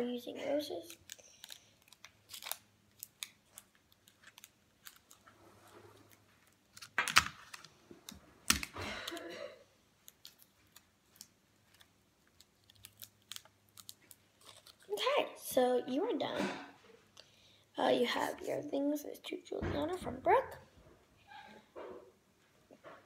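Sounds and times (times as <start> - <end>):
small clicks and crinkles: 0.7 - 9.3, 10.0 - 15.0.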